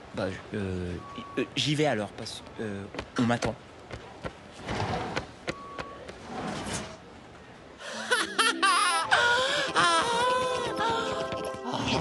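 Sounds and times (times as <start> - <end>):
cartoon music with sliding notes: 10.4 - 12.0.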